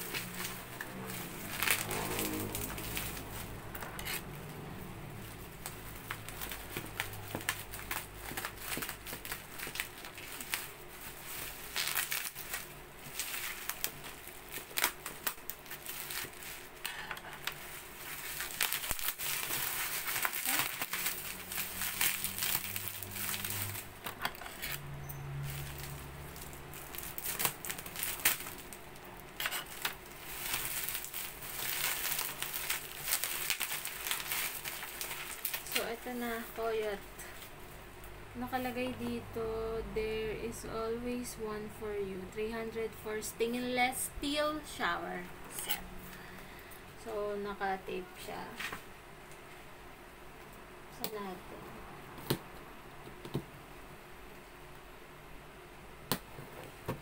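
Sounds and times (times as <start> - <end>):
bubble wrap crinkling: 0.0 - 37.8.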